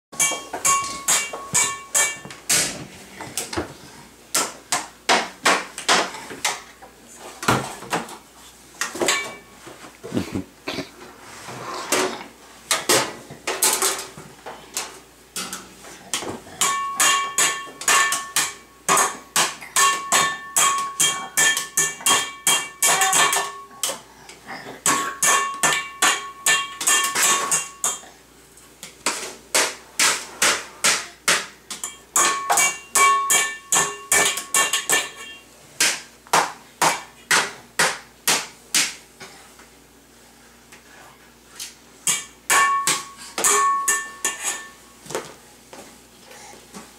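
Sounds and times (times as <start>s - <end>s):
metal utensils banging pans: 0.2s - 2.8s, 8.8s - 9.5s, 11.9s - 14.2s, 14.8s - 28.1s, 29.0s - 36.0s, 42.0s - 44.8s.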